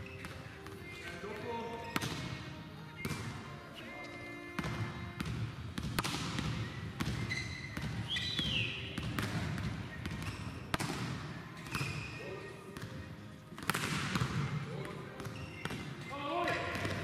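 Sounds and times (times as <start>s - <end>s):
volleyballs smacking and bouncing: 0.0s - 3.5s, 4.1s - 17.0s
short squeaks: 7.2s - 8.4s.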